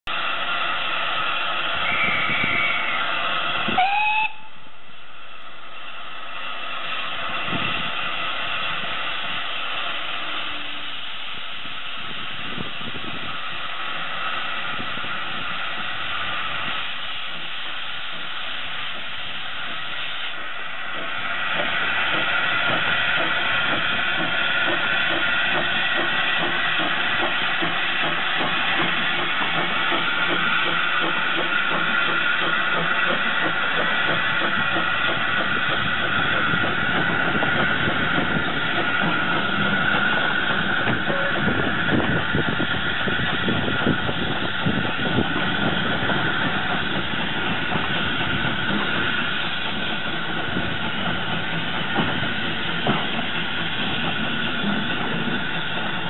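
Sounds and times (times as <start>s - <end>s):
steam locomotive hissing steam: 0.1s - 56.0s
steam whistle blast: 1.8s - 4.8s, 41.0s - 41.5s
locomotive exhaust beats: 10.2s - 56.0s.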